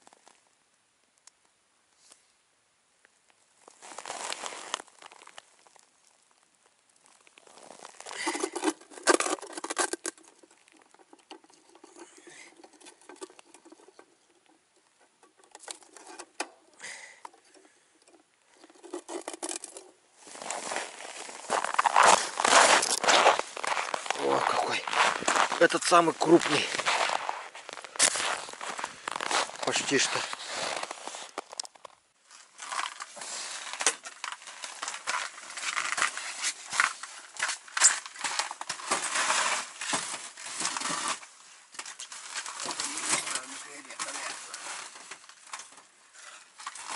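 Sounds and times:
crunching on snow-covered ice: 3.6s - 13.8s, 18.7s - 45.1s
hands scratching and crunching snow: 3.8s - 5.8s, 20.2s - 31.6s.

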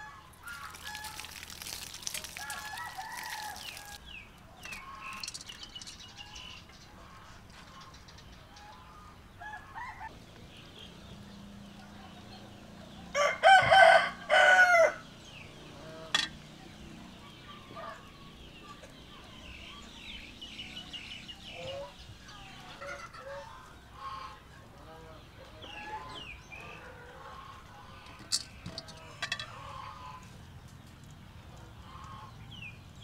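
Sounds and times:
faint small birds chirping: 0.0s - 9.1s
rooster crowing: 2.4s - 4.0s, 13.1s - 15.0s.

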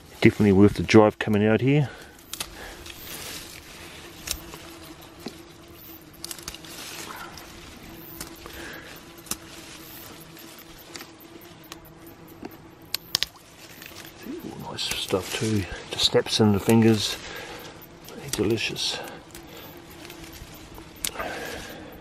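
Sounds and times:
leaves rustling: 0.0s - 22.0s
stems snapping: 2.0s - 5.4s, 6.1s - 15.6s, 16.6s - 17.0s, 17.6s - 21.5s.

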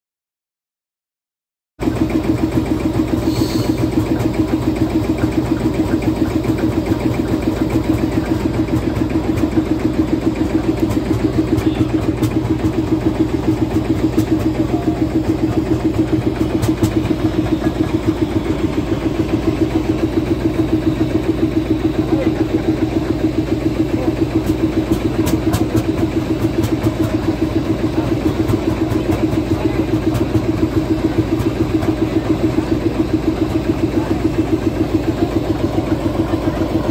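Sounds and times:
tractor engine idling: 1.8s - 36.9s.

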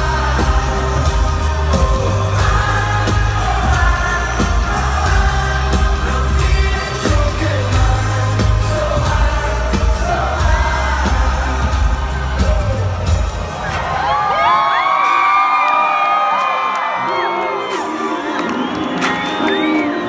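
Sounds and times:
heavy bass line: 0.0s - 14.0s
steady drum beat: 0.0s - 14.3s
singer's voice: 0.0s - 20.0s.

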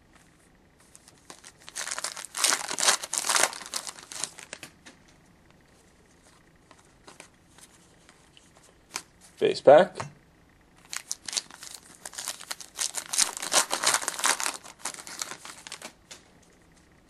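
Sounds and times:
cards rustling: 0.8s - 5.0s, 6.2s - 9.1s, 10.8s - 16.2s
wrapper tearing and crinkling: 1.0s - 4.7s, 10.8s - 16.0s.

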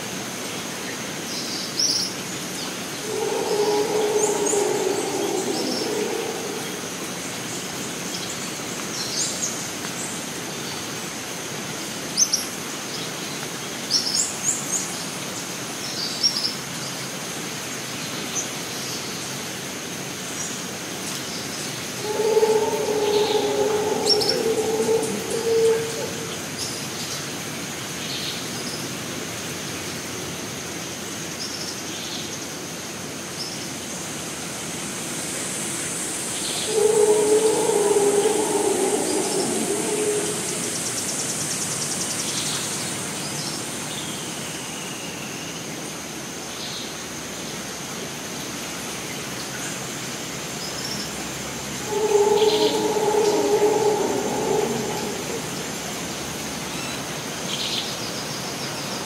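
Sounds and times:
insects chirring: 2.9s - 7.6s, 21.9s - 26.6s, 35.8s - 41.6s, 51.6s - 57.1s
falling whistled call: 3.0s - 7.0s, 22.0s - 26.4s, 36.4s - 41.3s, 51.8s - 56.4s
low drawn-out call: 3.0s - 7.3s, 22.0s - 26.6s, 36.4s - 41.3s, 51.7s - 56.7s.

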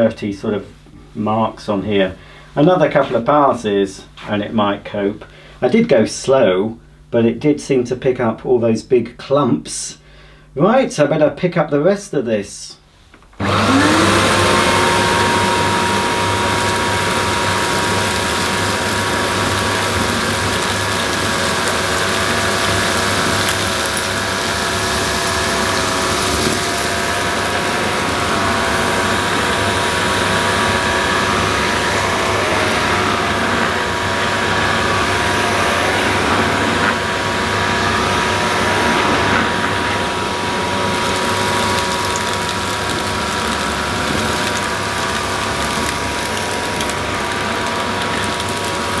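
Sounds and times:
power head brushing carpet: 13.4s - 49.0s
vacuum cleaner whining: 13.4s - 49.0s.

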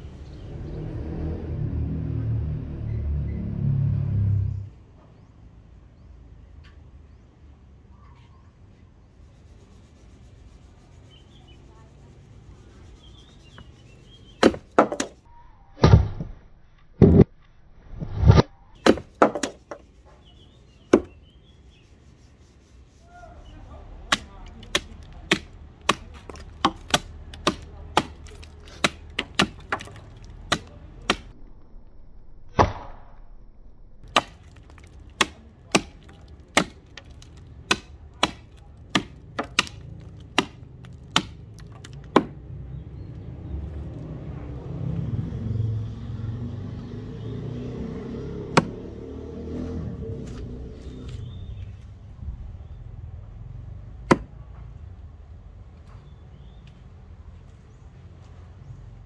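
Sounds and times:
hatchet chopping wood: 14.4s - 15.2s, 18.2s - 19.9s, 20.9s - 21.2s, 24.0s - 31.4s, 34.0s - 42.4s, 48.4s - 49.0s, 54.1s - 54.4s.

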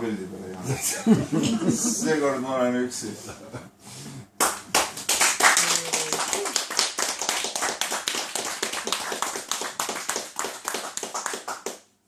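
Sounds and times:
group applauding: 4.4s - 12.0s.

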